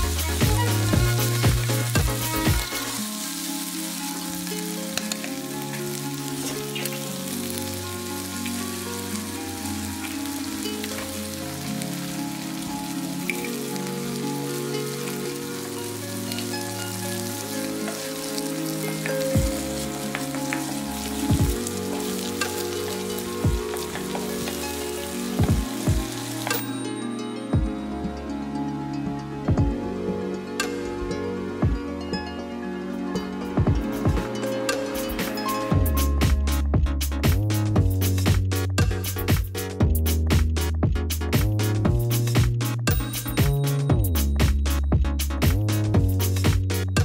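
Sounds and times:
food sizzling in frying pan: 0.0s - 27.6s
soft background music: 0.0s - 39.8s.

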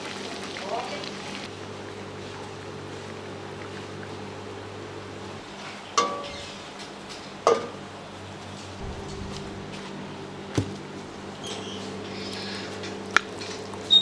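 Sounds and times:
steady low hum: 8.6s - 13.8s.

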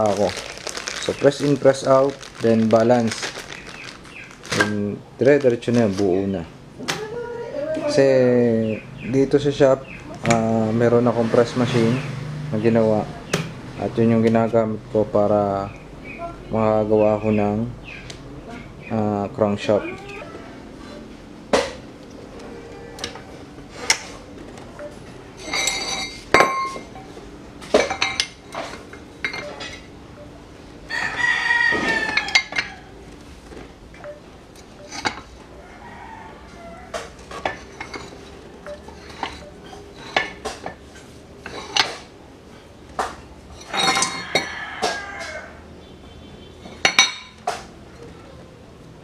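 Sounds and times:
rooster crowing: 20.0s - 21.1s, 22.3s - 23.7s, 30.9s - 33.1s, 35.5s - 37.3s, 43.8s - 45.7s
steel plates clanking: 25.4s - 27.1s, 43.5s - 44.6s.

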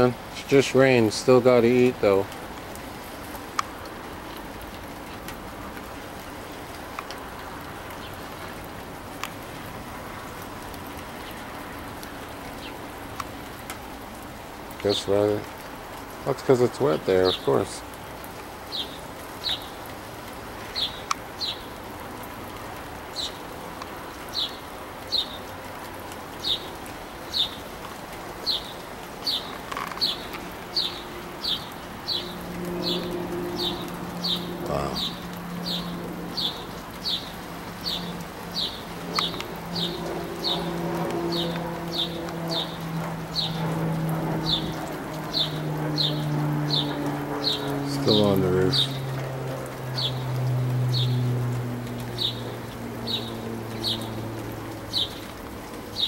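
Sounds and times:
steady rain falling: 0.0s - 56.0s
songbird chirping: 18.7s - 19.9s, 20.6s - 21.8s, 23.0s - 25.6s, 26.3s - 49.2s, 49.8s - 56.0s.

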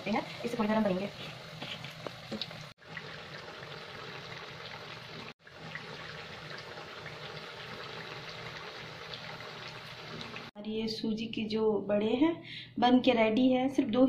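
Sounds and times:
food deep-frying in oil: 0.0s - 10.6s.

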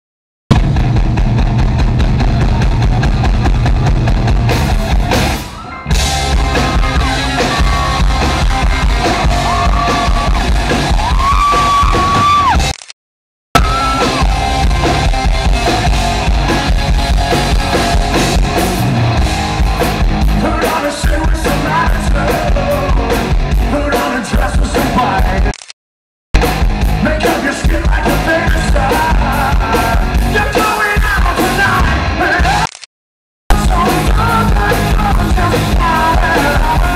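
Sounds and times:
live rock band playing: 0.5s - 12.7s, 13.6s - 25.4s, 26.4s - 32.6s, 33.5s - 36.9s
man singing lead vocal: 20.2s - 25.6s, 26.9s - 32.7s, 33.5s - 36.9s.

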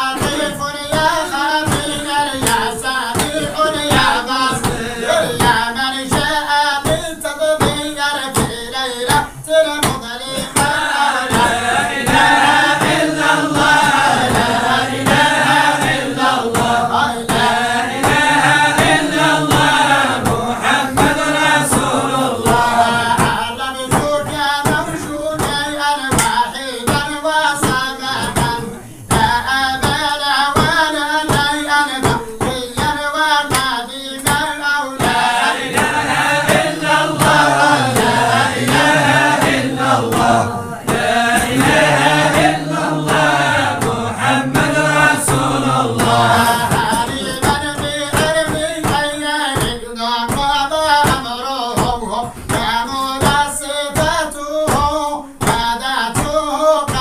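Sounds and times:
group of voices chanting: 0.0s - 5.6s, 10.4s - 23.6s, 35.0s - 47.6s
steady rhythmic beat: 0.0s - 57.0s.

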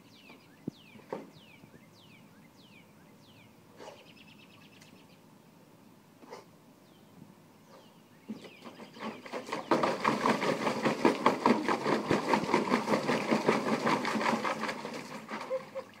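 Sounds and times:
dog pawing and splashing water: 8.3s - 16.0s.

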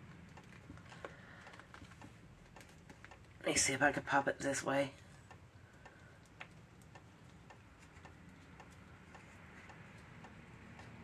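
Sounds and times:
faint ticking: 4.9s - 11.0s.

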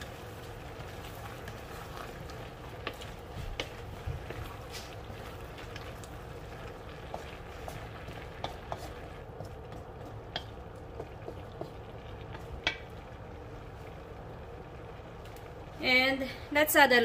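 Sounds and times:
wooden spatula scraping a wok: 0.0s - 12.7s
vegetables sizzling: 0.0s - 17.0s.

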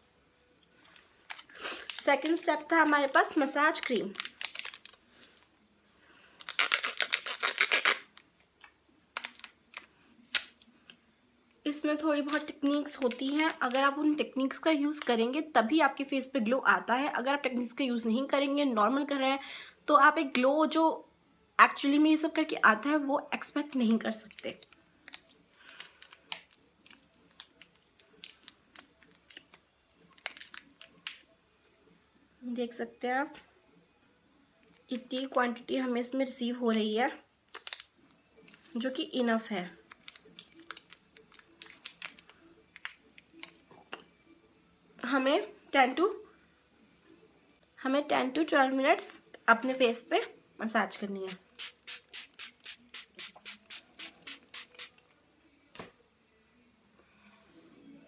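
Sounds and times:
plastic sachet crinkling: 0.7s - 5.4s, 6.4s - 10.7s, 12.2s - 14.1s, 23.8s - 31.3s, 37.5s - 38.6s, 39.8s - 43.6s.

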